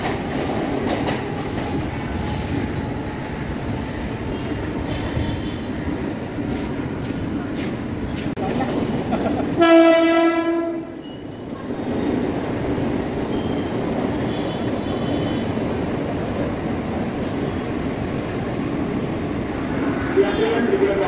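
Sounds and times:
train wheels rumbling on rails: 0.0 - 21.0
train horn: 9.6 - 11.2.

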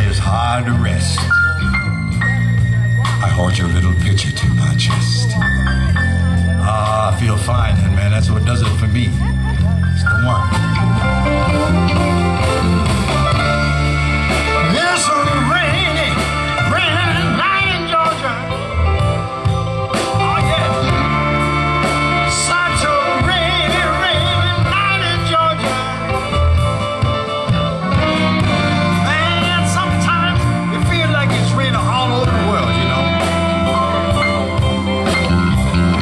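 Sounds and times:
live band playing soul ballad: 0.0 - 36.0
pulsing bass and drums: 0.0 - 36.0
wavering lead line: 8.8 - 36.0.

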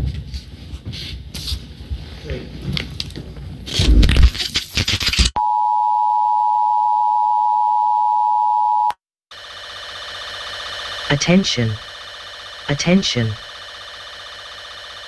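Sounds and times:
steady electronic attention tone: 9.3 - 15.0
crackling broadcast interference: 9.4 - 15.0.

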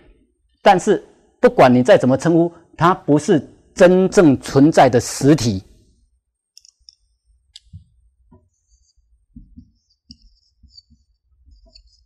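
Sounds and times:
marker pen on whiteboard: 5.8 - 12.0.

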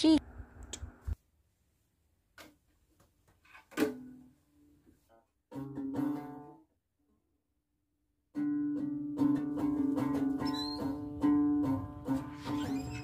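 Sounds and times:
plucked-string music: 5.5 - 6.6, 8.3 - 13.0.

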